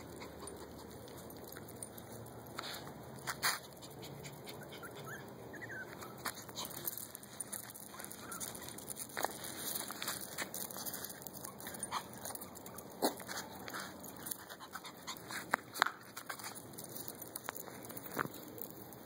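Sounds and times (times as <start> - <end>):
puppies yelping: 0.0 - 1.9, 3.6 - 15.5.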